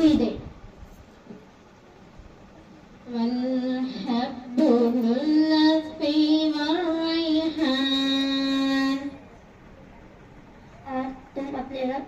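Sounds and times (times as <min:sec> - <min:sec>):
girl singing: 0:00.0 - 0:00.5, 0:03.0 - 0:09.2, 0:10.8 - 0:12.0.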